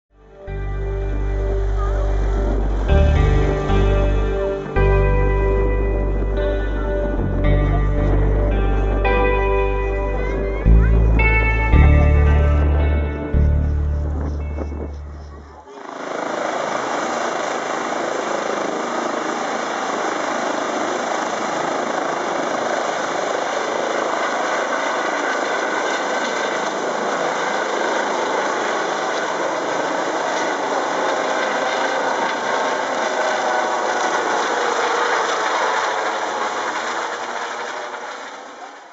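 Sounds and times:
helicopter taking off: 0.4 - 38.9.

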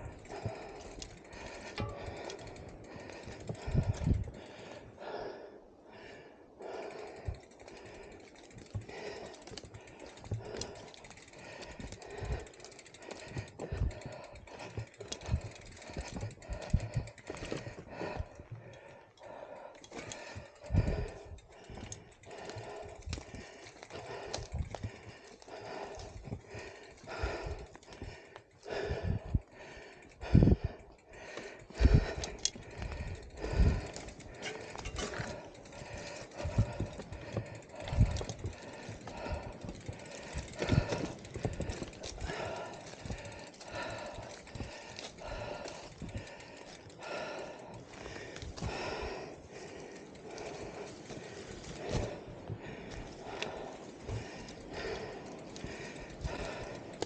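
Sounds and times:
bike clattering over rough track: 0.0 - 4.4, 7.2 - 18.7, 31.4 - 57.0
heavy breathing: 0.0 - 57.0.

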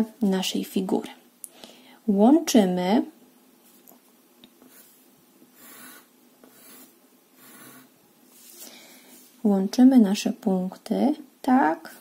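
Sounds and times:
pencil scratching on paper: 4.6 - 5.0, 5.6 - 8.6.

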